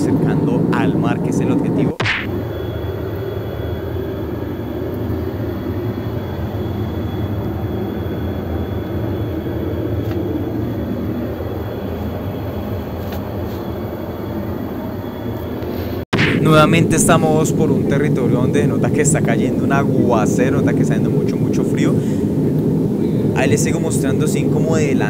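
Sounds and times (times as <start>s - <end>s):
airliner cabin engine rumble: 0.0s - 25.0s.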